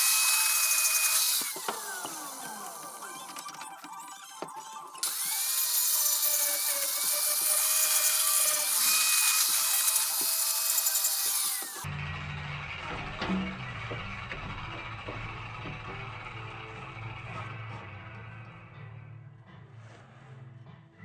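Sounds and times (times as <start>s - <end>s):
angle grinder grinding wood: 0.0s - 11.9s.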